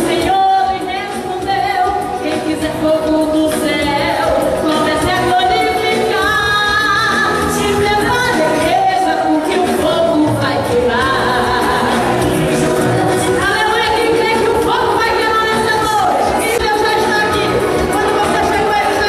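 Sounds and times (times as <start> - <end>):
woman singing through loudspeaker: 0.0 - 19.0.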